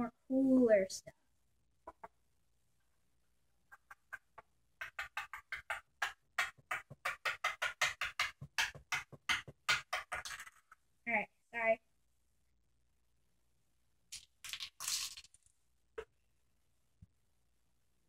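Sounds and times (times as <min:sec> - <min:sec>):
plastic bricks clicking: 0:07.1 - 0:10.8, 0:14.1 - 0:15.5.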